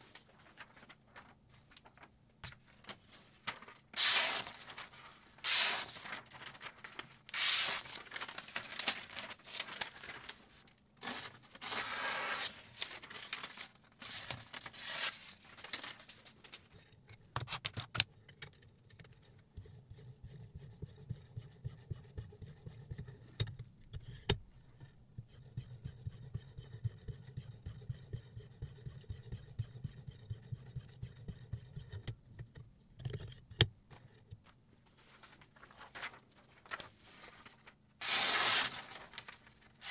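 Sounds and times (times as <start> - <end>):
knife slicing paper: 3.9 - 4.8, 5.4 - 6.5, 7.3 - 9.8, 11.0 - 13.4, 14.0 - 15.4, 38.0 - 39.9.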